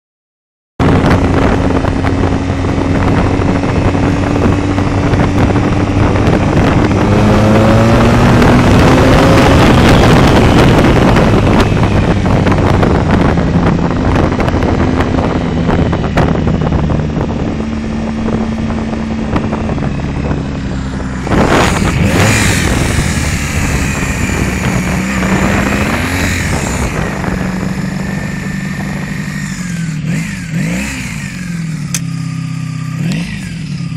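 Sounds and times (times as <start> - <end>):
loud rush of noise: 0.8 - 31.3
motorcycle engine running: 0.8 - 33.9
wind noise on microphone: 0.8 - 33.9.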